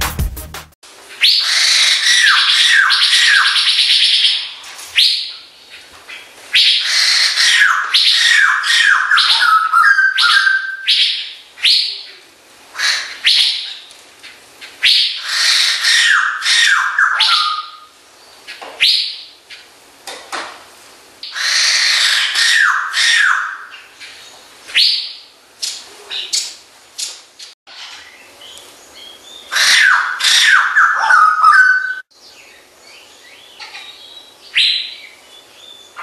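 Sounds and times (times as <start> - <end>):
bird cackling chatter: 33.5 - 34.2.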